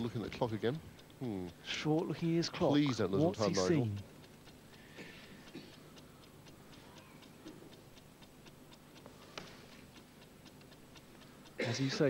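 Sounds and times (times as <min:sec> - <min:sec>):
clock ticking fast: 0:00.0 - 0:12.0.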